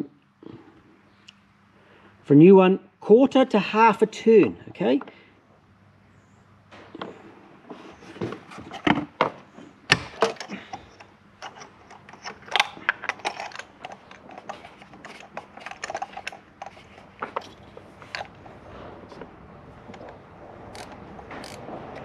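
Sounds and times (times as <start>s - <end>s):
ratchet clicking: 20.7s - 21.6s.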